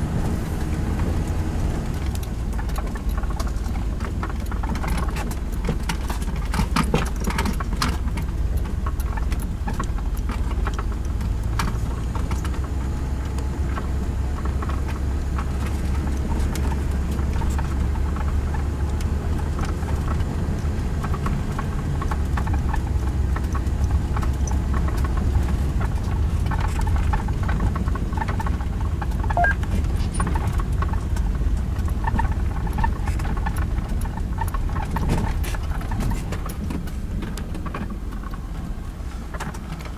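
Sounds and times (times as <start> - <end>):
vehicle engine running low: 0.0 - 39.9
light clicks and rattles: 1.9 - 39.9.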